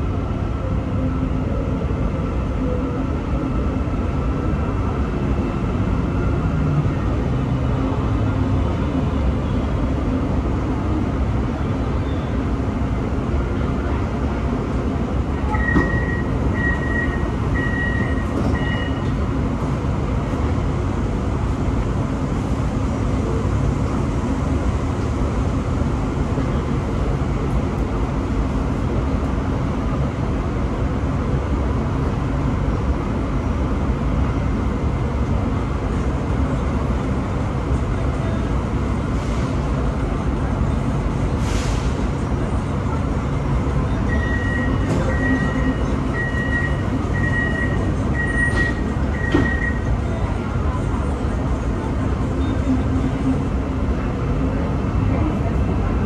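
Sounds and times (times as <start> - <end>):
short electronic beeps: 15.5 - 19.1, 44.1 - 49.9.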